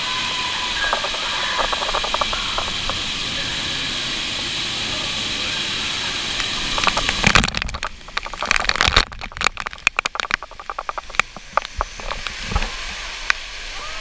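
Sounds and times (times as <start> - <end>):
falling water rushing: 0.0 - 14.0
water drops splattering on camera: 0.8 - 3.1, 6.4 - 12.6.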